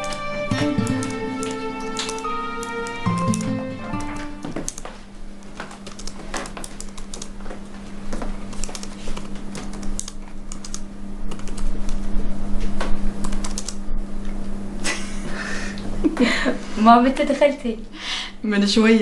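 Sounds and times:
steady low hum: 0.0 - 19.0
laptop keyboard clicks: 5.8 - 7.3, 8.5 - 12.0, 13.2 - 13.8.

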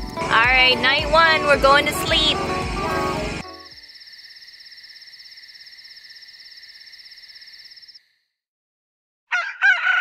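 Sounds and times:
cricket trilling: 3.5 - 8.2.

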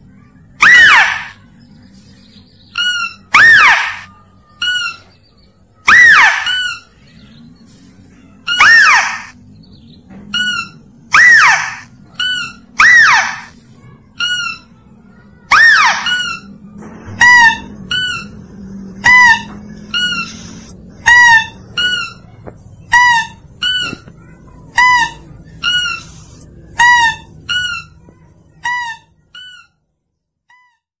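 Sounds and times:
nasal squealing lure call: 0.6 - 1.4, 2.8 - 5.0, 5.9 - 6.9, 8.5 - 9.4, 10.4 - 13.5, 15.5 - 16.5, 19.0 - 22.2, 24.8 - 28.0.

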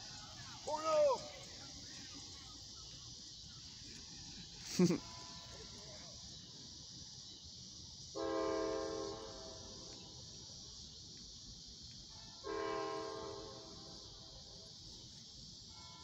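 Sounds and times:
distant train air horn blasts: 8.2 - 10.0, 12.1 - 14.2, 15.7 - 16.0.

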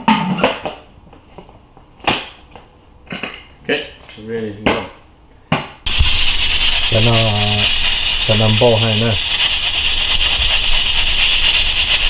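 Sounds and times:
pressure cooker hissing steam: 5.9 - 12.0.

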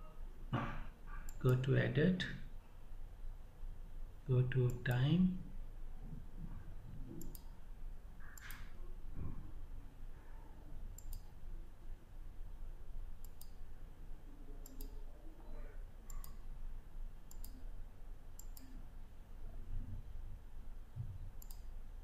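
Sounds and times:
faint low hum: 0.0 - 22.0
computer mouse clicking: 1.3 - 1.6, 7.1 - 7.6, 8.2 - 8.8, 11.0 - 11.4, 13.2 - 13.6, 14.6 - 15.0, 16.1 - 16.5, 17.3 - 17.7, 18.4 - 18.8, 21.4 - 21.8.

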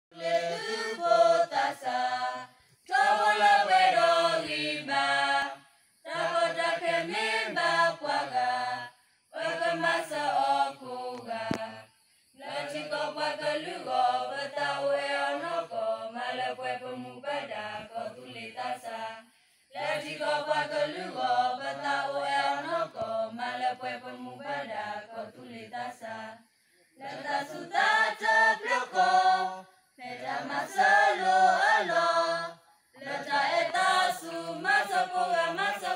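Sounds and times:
group singing without instruments: 0.1 - 35.9.

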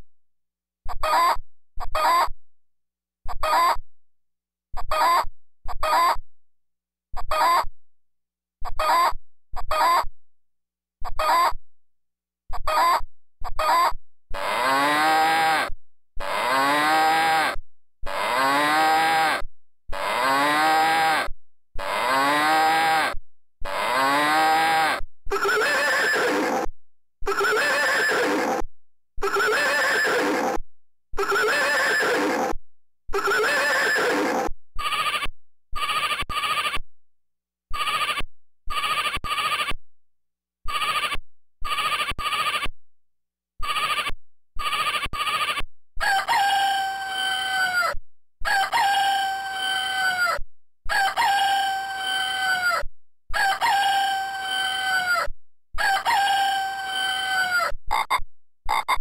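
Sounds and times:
electronic animal call: 0.9 - 2.3, 3.3 - 3.8, 4.9 - 5.2, 5.8 - 6.2, 7.2 - 7.7, 8.8 - 9.1, 9.7 - 10.1, 11.1 - 11.6, 12.6 - 28.6, 29.2 - 30.6, 31.2 - 36.8, 37.7 - 39.8, 40.7 - 42.7, 43.6 - 59.0
electronic hen clucks: 0.9 - 2.3, 3.3 - 3.8, 4.8 - 6.2, 7.2 - 7.7, 8.6 - 10.1, 11.0 - 11.6, 12.5 - 28.6, 29.2 - 30.6, 31.2 - 36.8, 37.7 - 39.8, 40.7 - 42.7, 43.6 - 59.0
electronic sheep bleat: 0.9 - 2.4, 3.3 - 3.8, 4.8 - 6.2, 7.2 - 7.7, 8.6 - 10.1, 11.0 - 11.6, 12.5 - 30.6, 31.2 - 36.8, 37.7 - 39.8, 40.7 - 42.7, 43.6 - 59.0
electronic bull mooing: 13.6 - 26.7, 27.3 - 28.6, 29.2 - 30.6, 31.2 - 35.1.

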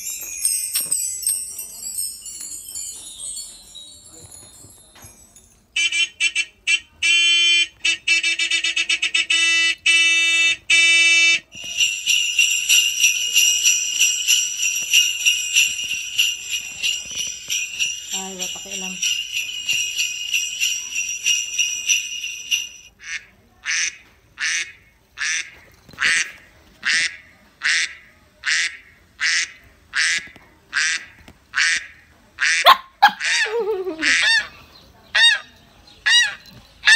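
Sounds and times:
jingle bells shaking: 0.0 - 5.8, 11.5 - 22.9, 33.5 - 34.2, 36.0 - 36.9.

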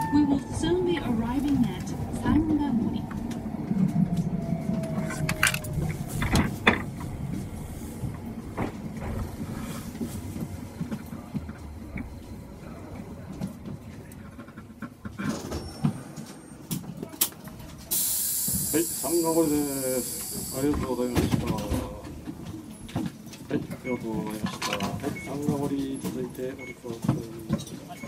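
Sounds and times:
train wheel rumble: 0.0 - 27.8
train motor whine: 3.8 - 7.0
clacks from rails: 20.4 - 28.0.

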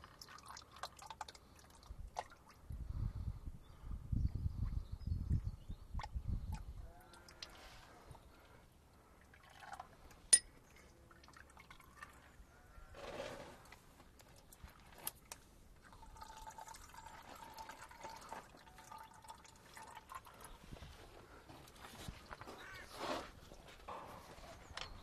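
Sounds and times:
oil dripping and trickling: 0.0 - 2.6, 8.9 - 12.3, 14.2 - 21.0.

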